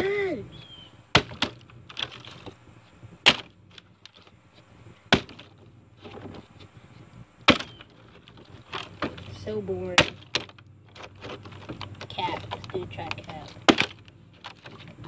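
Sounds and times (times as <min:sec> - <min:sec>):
plastic bottle thudding: 0:01.1 - 0:02.5, 0:03.2 - 0:04.2, 0:05.1 - 0:06.4, 0:07.5 - 0:09.3, 0:13.6 - 0:14.8.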